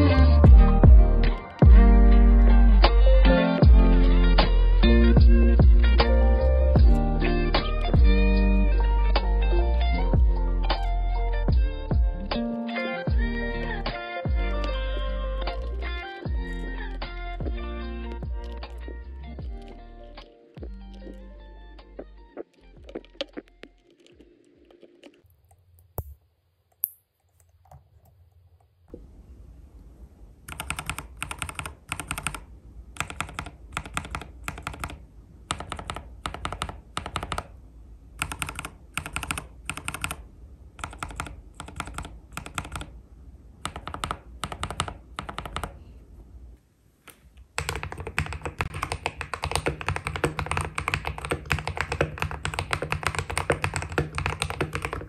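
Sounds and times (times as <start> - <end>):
mechanical keyboard keys pressed: 30.5 - 32.4, 33.0 - 37.5, 38.2 - 40.2, 40.8 - 42.9, 43.6 - 45.8, 47.6 - 55.0
fast typing: 30.5 - 37.5, 38.2 - 40.2, 40.8 - 42.9, 43.6 - 45.8, 47.6 - 55.0.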